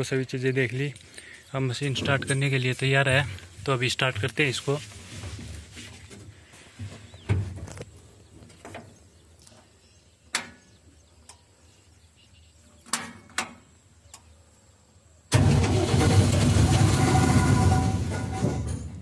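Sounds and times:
diesel engine starting and running: 0:15.3 - 0:19.0.

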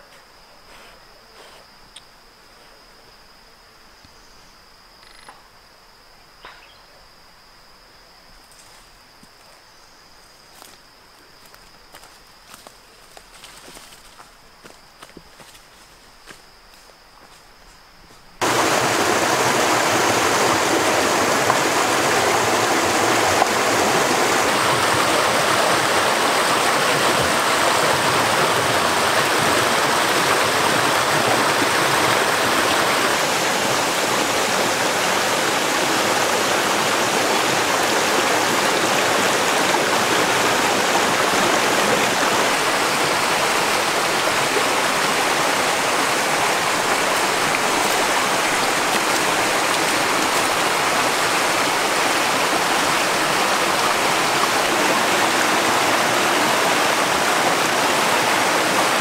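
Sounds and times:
stream water rushing: 0:18.4 - 0:59.0.

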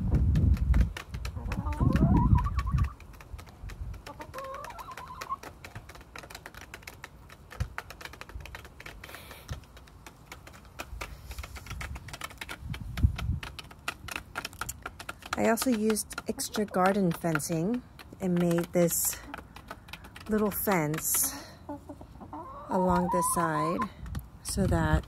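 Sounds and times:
beaks clicking on plastic bowl: 0:00.6 - 0:21.6
hen call: 0:21.7 - 0:23.9.

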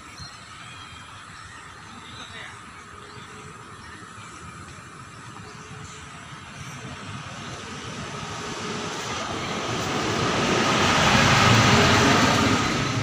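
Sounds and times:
vehicle passing by: 0:07.1 - 0:13.0.

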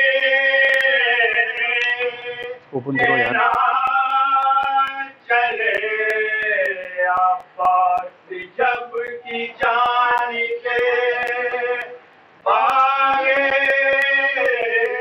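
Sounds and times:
man chanting: 0:02.3 - 0:03.8.

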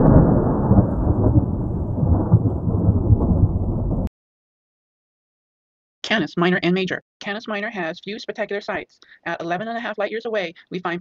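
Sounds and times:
rumbling thunder: 0:00.0 - 0:04.1.

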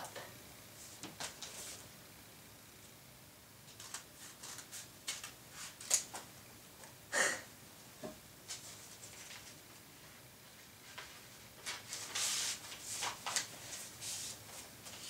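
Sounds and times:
paper rustling: 0:03.7 - 0:06.2, 0:08.5 - 0:09.6, 0:10.8 - 0:15.0.

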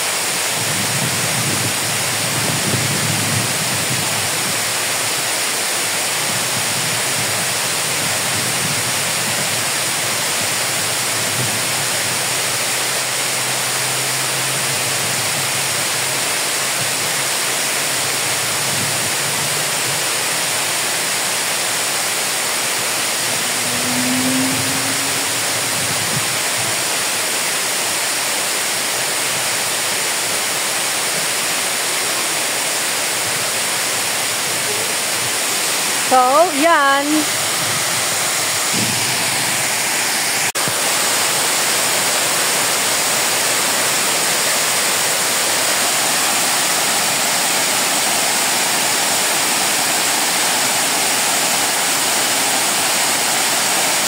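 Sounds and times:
water pouring over dam: 0:00.0 - 0:54.0.

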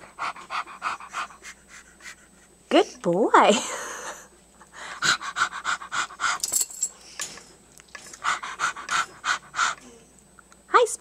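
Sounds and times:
parrot imitating dog panting: 0:00.0 - 0:02.6, 0:04.8 - 0:06.4, 0:08.1 - 0:10.0.

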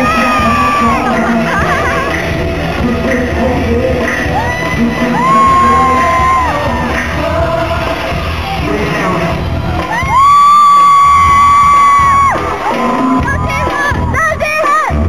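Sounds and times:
audience cheering: 0:00.0 - 0:14.7
live pop music: 0:00.0 - 0:15.0
rising whoops: 0:04.4 - 0:07.0, 0:09.8 - 0:14.1.

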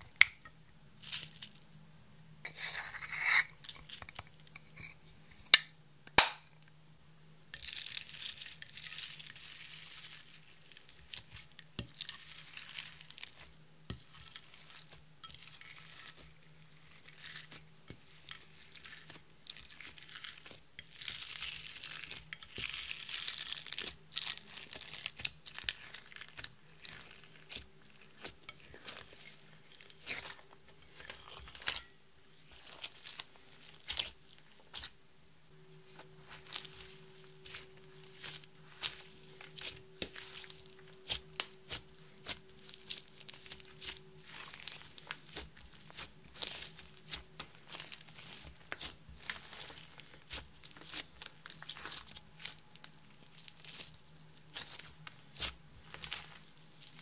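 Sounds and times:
slime crackling and squishing: 0:01.0 - 0:01.6, 0:07.6 - 0:35.0, 0:35.7 - 0:57.0.

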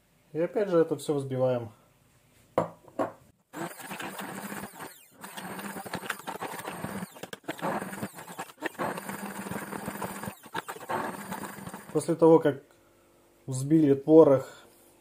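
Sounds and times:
immersion blender running: 0:03.5 - 0:12.1.

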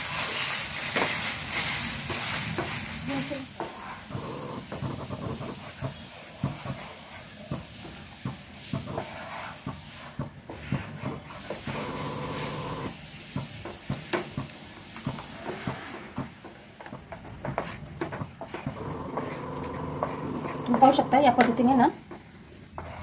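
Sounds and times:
wooden spatula scraping pan: 0:00.0 - 0:12.9, 0:17.4 - 0:23.0.

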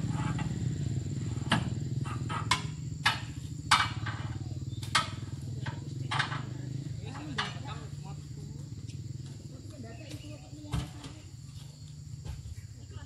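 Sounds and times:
low engine hum: 0:00.0 - 0:13.0
fruit bunches knocking onto truck: 0:01.4 - 0:07.7.

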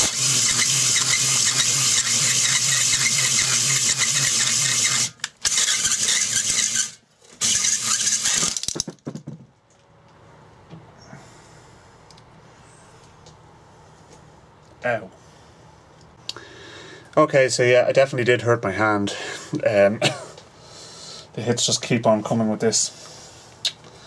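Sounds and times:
drill motor hum: 0:00.0 - 0:08.7.

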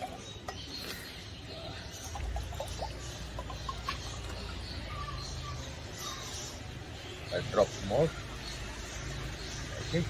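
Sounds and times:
water glugging into glass: 0:01.8 - 0:04.6.

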